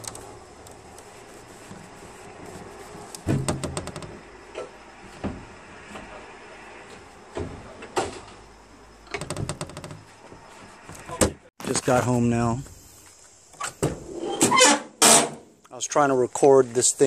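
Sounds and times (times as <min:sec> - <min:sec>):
knocks and clunks: 0:02.4 - 0:08.4, 0:09.0 - 0:11.5.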